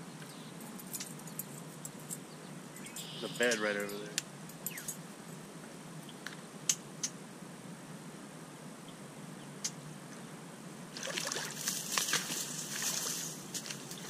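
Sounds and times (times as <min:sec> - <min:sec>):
outdoor background hiss: 0:00.0 - 0:14.0
footsteps through wet grass: 0:11.0 - 0:14.0.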